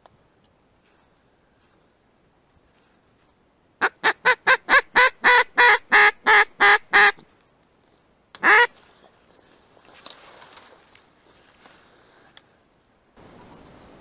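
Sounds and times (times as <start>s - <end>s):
duck call quacks: 3.8s - 7.2s, 8.4s - 8.7s.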